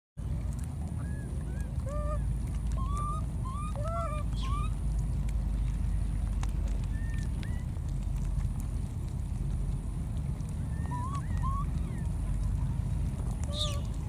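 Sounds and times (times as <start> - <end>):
steady low rumble: 0.2 - 14.0
baby monkeys squeaky calls: 2.8 - 4.8, 10.7 - 12.0, 13.5 - 14.0.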